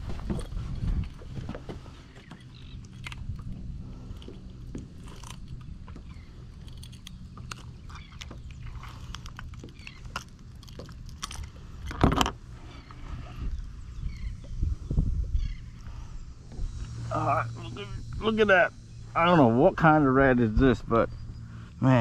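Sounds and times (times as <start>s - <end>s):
boat motor humming: 0.0s - 22.0s
clicks and knocks of gear: 0.1s - 13.0s.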